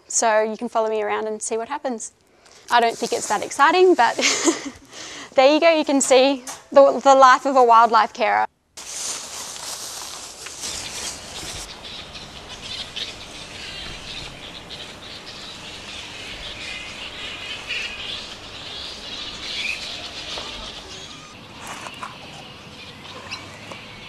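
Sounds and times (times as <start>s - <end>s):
flying foxes squeaking and chirping: 8.9s - 24.0s.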